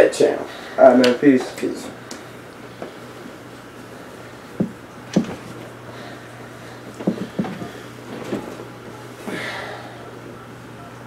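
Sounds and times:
steady low hum: 0.0s - 11.0s
fabric and cushion rustle: 6.9s - 9.3s.

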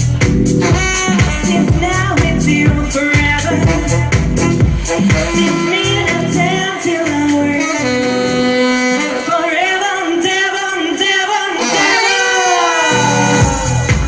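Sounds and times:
kick drum and bass: 0.0s - 6.5s, 13.0s - 14.0s
deep house music: 0.0s - 14.0s
saxophone playing: 0.1s - 10.5s, 11.6s - 14.0s
woman singing: 0.7s - 8.4s, 9.0s - 14.0s.

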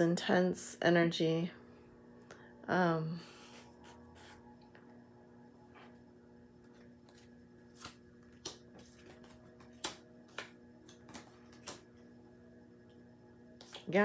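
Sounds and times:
faint steady hum: 0.0s - 14.0s
cards being shuffled: 6.6s - 12.0s, 13.6s - 13.9s
card snaps: 7.8s - 11.9s.

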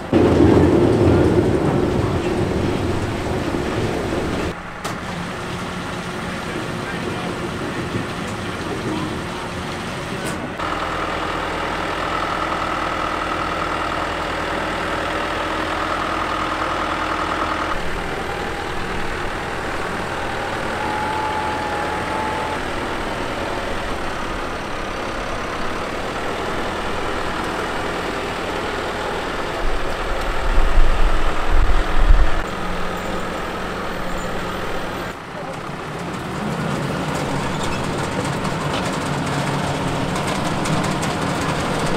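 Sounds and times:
loud low thumps: 0.0s - 4.6s
tractor and harvester running: 0.0s - 41.9s
steady machinery whine: 14.8s - 41.9s.

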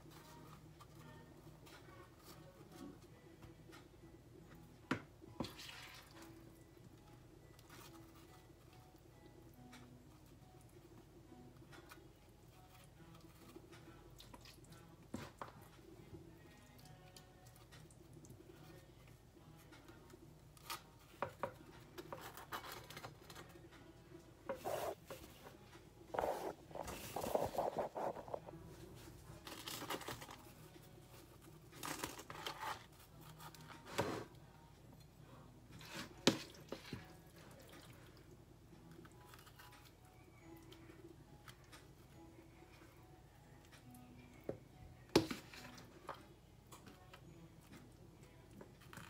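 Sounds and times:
bread and towel rustling: 24.5s - 34.3s.

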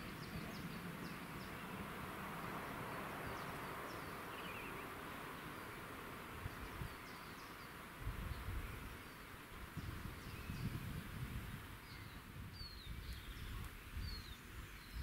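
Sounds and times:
background hiss: 0.0s - 15.0s.

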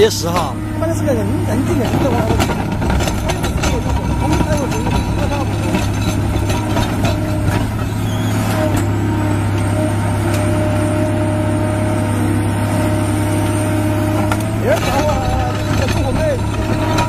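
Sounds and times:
excavator diesel engine running: 0.0s - 17.0s
rock knocking and scraping: 1.7s - 7.9s.

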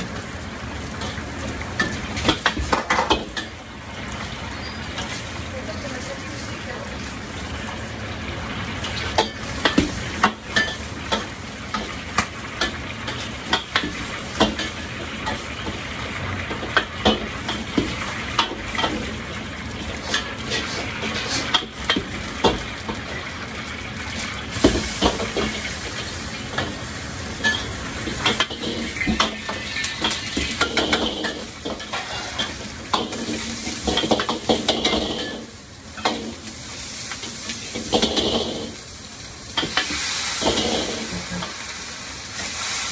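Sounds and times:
oil sizzling in wok: 0.0s - 42.9s
metal utensils clanking in wok: 8.8s - 15.7s, 16.4s - 19.2s, 19.8s - 23.2s, 27.4s - 36.4s, 37.1s - 38.8s, 39.6s - 41.6s.

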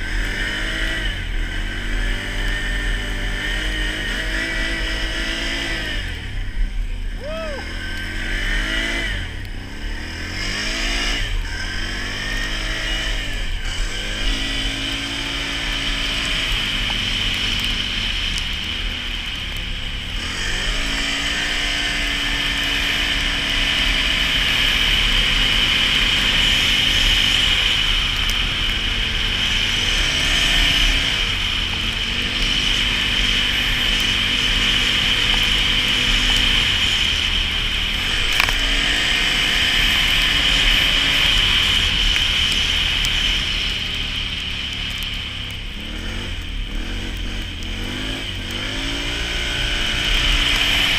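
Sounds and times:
atv engine revving: 0.0s - 50.9s.

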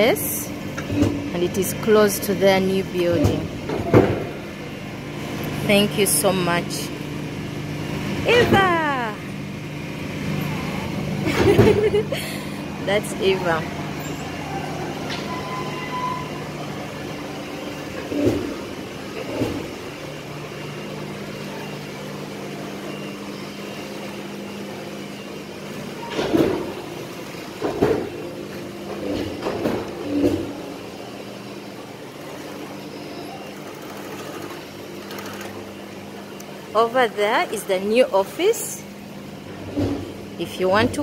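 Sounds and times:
sewing machine motors humming: 32.0s - 36.7s.

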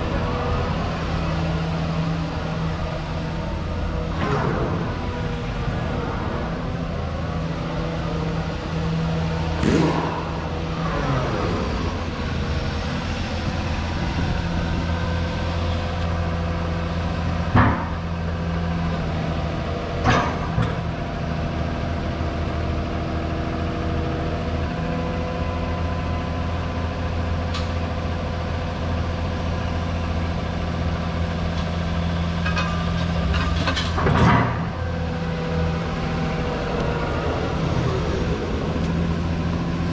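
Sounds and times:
excavator diesel engine running: 0.0s - 39.9s
sharp machine knocks: 9.6s - 10.7s.

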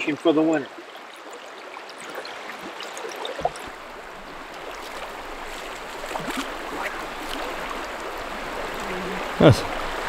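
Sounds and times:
river current rushing: 0.0s - 10.0s
low thump: 3.4s - 3.8s.

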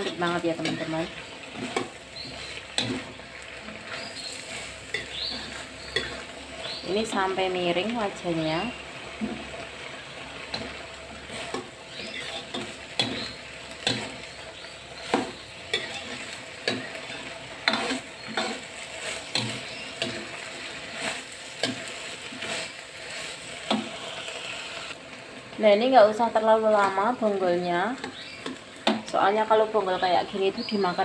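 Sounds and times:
metal spatula scraping wok: 0.0s - 25.0s
frying sizzle: 0.0s - 31.0s.

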